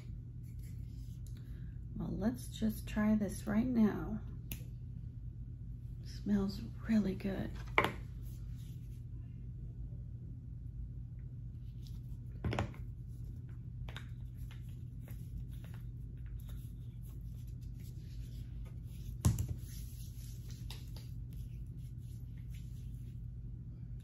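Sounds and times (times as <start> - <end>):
low background hum: 0.0 - 24.0.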